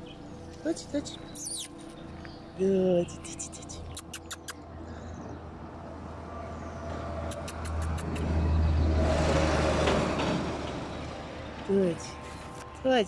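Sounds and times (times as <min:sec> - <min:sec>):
car passing by: 0:06.2 - 0:12.6.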